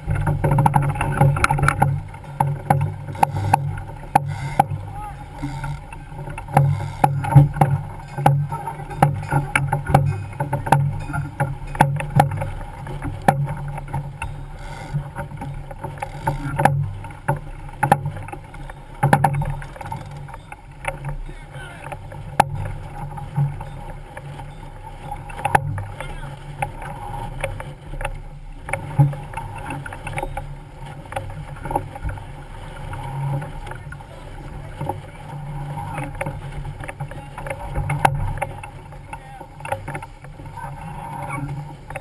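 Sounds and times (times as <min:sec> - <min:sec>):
water rushing along hull: 0:00.0 - 0:42.0
sharp knocks and clatters: 0:05.4 - 0:18.4, 0:19.0 - 0:21.2.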